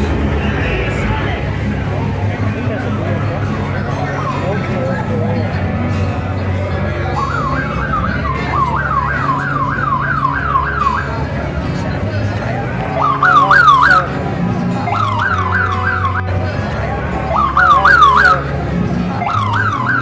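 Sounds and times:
passing car engines rumbling: 0:00.0 - 0:20.0
siren yelping: 0:07.2 - 0:11.3, 0:12.9 - 0:14.1, 0:14.9 - 0:16.4, 0:17.3 - 0:18.5, 0:19.2 - 0:20.0.

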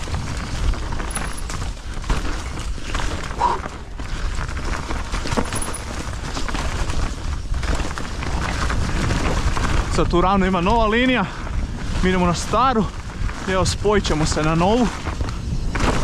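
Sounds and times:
bike rattling clicks and knocks: 0:00.0 - 0:16.0
bike tyres rolling on dirt: 0:00.0 - 0:16.0
wind on microphone: 0:06.2 - 0:16.0.

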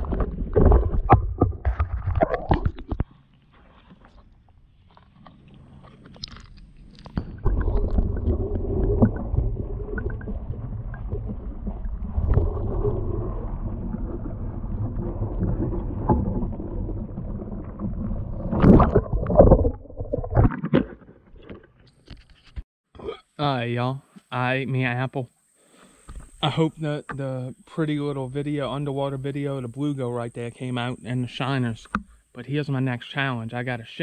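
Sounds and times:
underwater splashes or knocks: 0:00.0 - 0:03.1, 0:07.0 - 0:21.8
underwater creek rumble and gurgling: 0:00.0 - 0:21.9.

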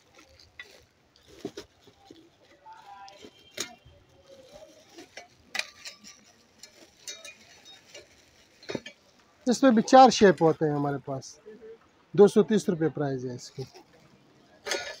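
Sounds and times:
plastic wrap rustling: 0:00.0 - 0:09.2
metal utensils clinking: 0:04.9 - 0:09.1, 0:14.6 - 0:15.0.

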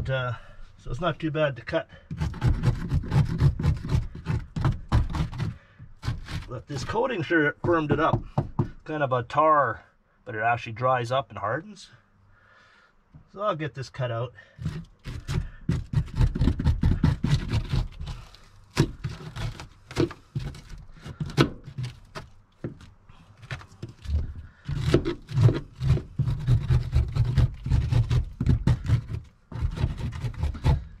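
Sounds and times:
chisel scraping and knocking wood: 0:02.0 - 0:08.8, 0:14.6 - 0:31.0.

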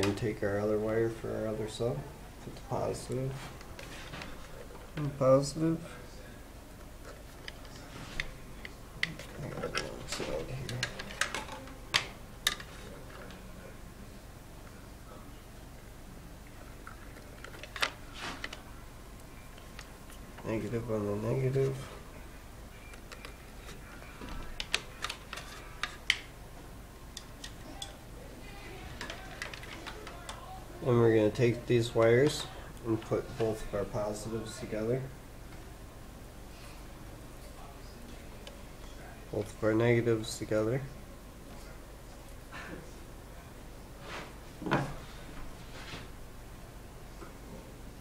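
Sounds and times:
wire handling noise: 0:06.8 - 0:13.6, 0:16.4 - 0:22.0, 0:22.8 - 0:26.4, 0:27.1 - 0:30.6.

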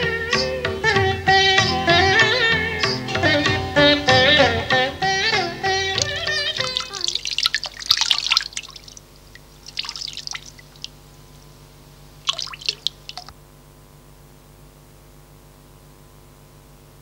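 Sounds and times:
tap water splashing into sink: 0:06.0 - 0:11.0, 0:12.3 - 0:13.3.

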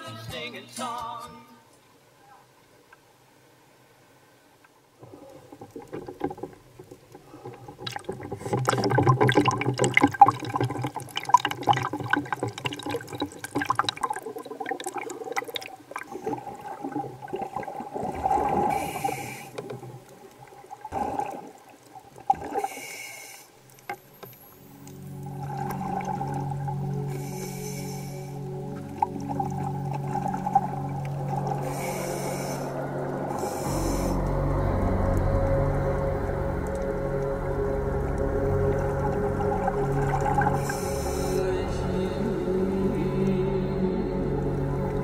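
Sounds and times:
water sloshing and splashing: 0:04.6 - 0:22.9, 0:23.5 - 0:45.0
underwater clicks and crackles: 0:04.6 - 0:34.4, 0:35.0 - 0:41.4
bubbling bursts: 0:05.5 - 0:22.6, 0:24.5 - 0:42.9.

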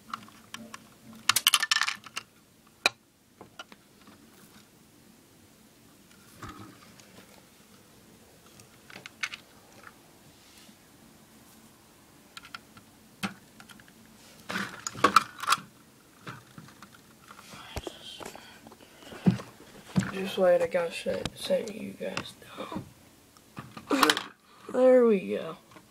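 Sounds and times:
plastic toy bricks clicking: 0:01.3 - 0:02.3, 0:24.0 - 0:24.4.

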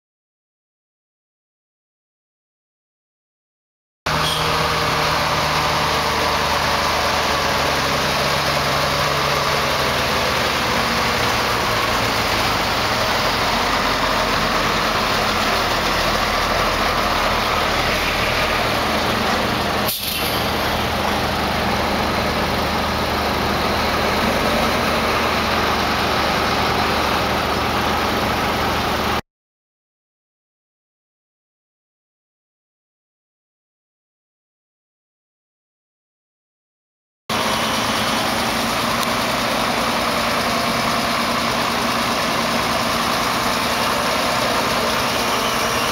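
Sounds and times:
diesel truck engines passing: 0:04.1 - 0:29.2, 0:37.3 - 0:45.9.

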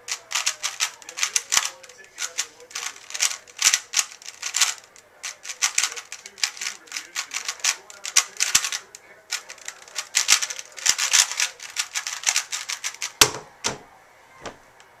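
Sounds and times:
puzzle cube plastic clatter: 0:00.0 - 0:13.4
louder thumps: 0:13.2 - 0:14.6.

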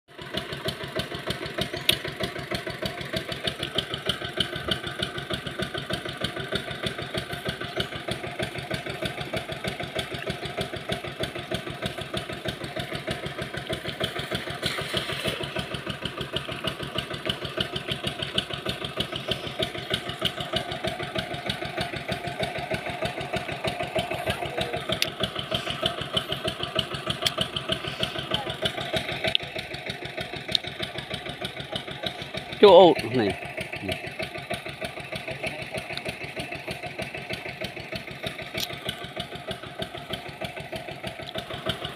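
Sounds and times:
engine pulsing steadily: 0:00.1 - 0:41.9
net splashing into water: 0:13.7 - 0:16.0.

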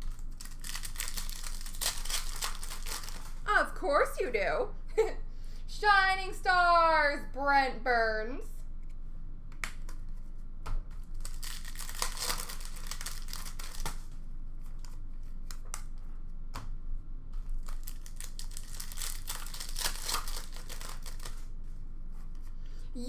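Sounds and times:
wrappers tearing and crinkling: 0:00.0 - 0:03.4, 0:11.1 - 0:14.1, 0:17.6 - 0:21.5
cards shuffled: 0:10.9 - 0:14.1, 0:17.4 - 0:21.4.

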